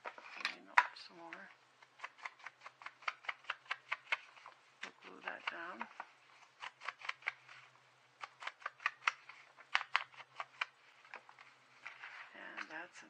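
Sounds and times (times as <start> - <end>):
paper clicks and taps: 1.9 - 7.5, 8.2 - 12.0.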